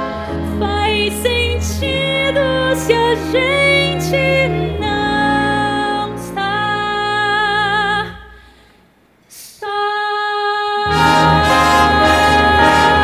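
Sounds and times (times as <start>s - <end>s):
orchestra playing sustained chords: 10.9s - 13.0s.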